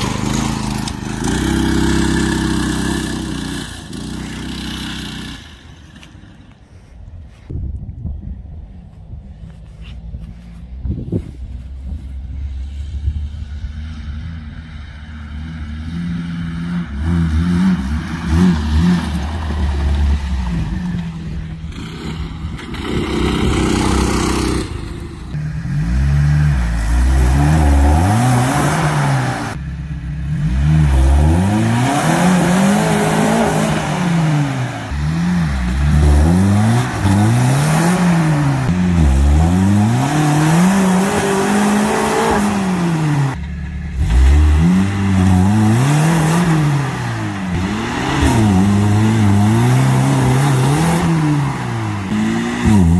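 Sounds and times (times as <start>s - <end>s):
car engine revving under load: 12.6s - 52.9s.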